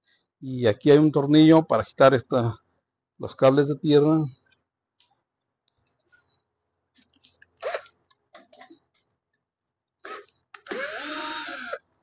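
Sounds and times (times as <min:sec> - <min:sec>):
cordless screwdriver spinning: 0:07.6 - 0:07.9, 0:10.0 - 0:11.8.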